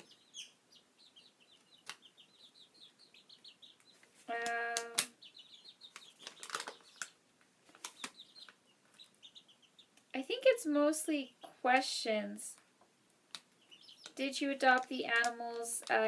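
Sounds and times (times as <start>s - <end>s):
chicks peeping: 0.0s - 16.0s
paper rustling and clicking: 5.9s - 8.6s.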